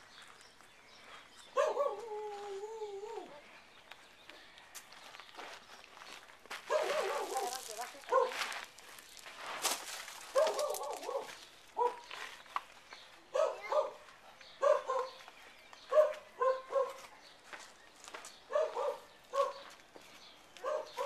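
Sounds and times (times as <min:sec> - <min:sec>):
dog barking: 0:01.6 - 0:02.1, 0:06.7 - 0:08.4, 0:10.3 - 0:12.1, 0:13.3 - 0:15.2, 0:15.9 - 0:17.1, 0:18.5 - 0:19.7, 0:20.6 - 0:21.0.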